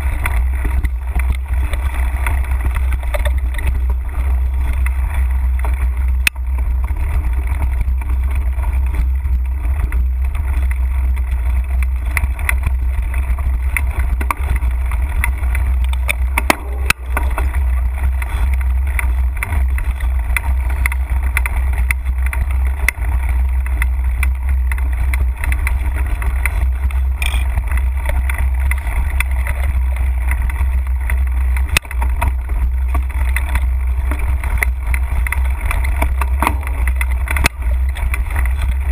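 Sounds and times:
bike rattling: 0.0s - 38.9s
mountain bike rolling on dirt: 0.0s - 38.9s
sharp knocks over bumps: 13.7s - 23.0s.

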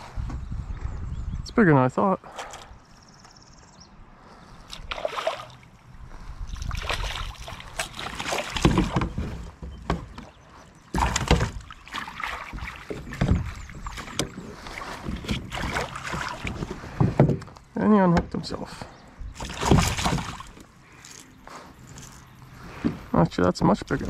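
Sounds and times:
water splashing: 4.7s - 5.8s, 6.5s - 9.6s, 10.5s - 17.0s, 19.4s - 21.2s
knocks on kayak: 8.6s - 9.2s.

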